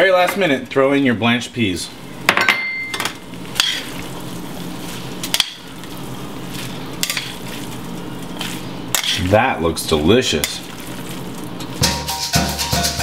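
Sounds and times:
pan sizzling: 3.0 - 9.6, 10.2 - 13.0
metal tongs clinking on skillet: 7.0 - 7.4.

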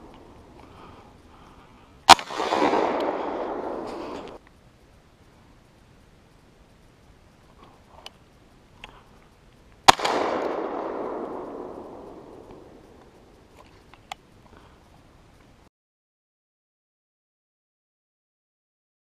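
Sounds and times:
shotgun shot echoing: 2.1 - 4.4, 9.9 - 13.2.

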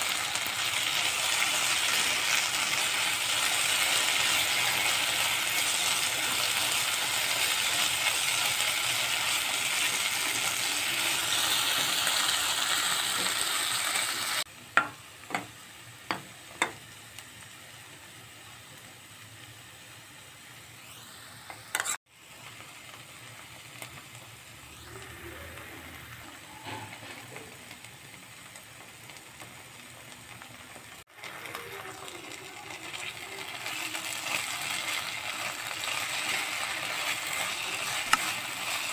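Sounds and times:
vegetables sizzling in a pan: 0.0 - 38.9
spatula stirring: 32.3 - 38.9.

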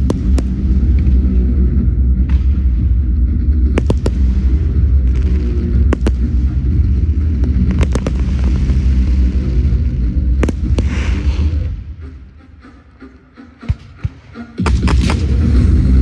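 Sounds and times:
fireworks crackle: 0.0 - 1.6, 3.7 - 11.8
fireworks sharp reports: 0.0 - 12.2
fireworks rumble: 0.0 - 12.6, 13.7 - 16.0.

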